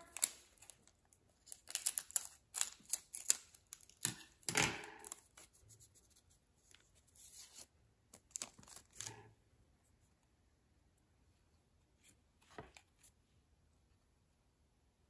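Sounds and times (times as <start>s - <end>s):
scissors snipping plastic wrapper: 0.0s - 5.2s
plastic wrapper crinkling: 0.0s - 5.4s, 8.2s - 9.2s.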